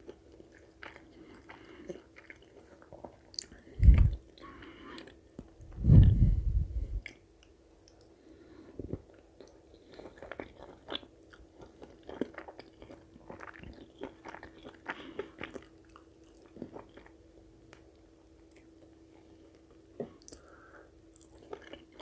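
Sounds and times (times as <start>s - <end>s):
faint hum: 0.0s - 22.0s
person chewing food: 0.0s - 22.0s.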